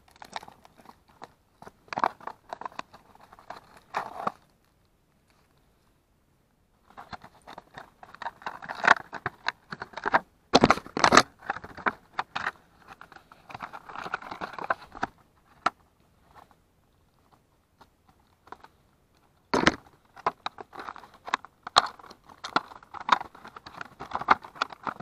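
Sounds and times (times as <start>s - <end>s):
plastic packaging crackling: 19.5s - 25.0s.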